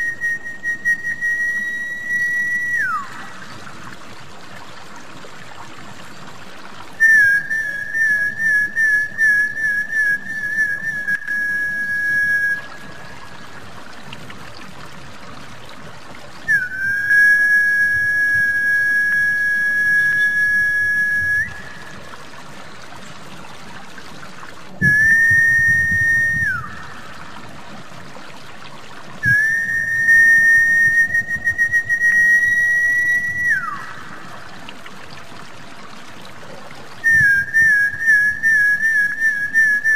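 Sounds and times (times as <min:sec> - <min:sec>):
faint trickle of water: 0:00.0 - 0:39.9
high whistled notes: 0:24.8 - 0:27.0, 0:29.2 - 0:33.9.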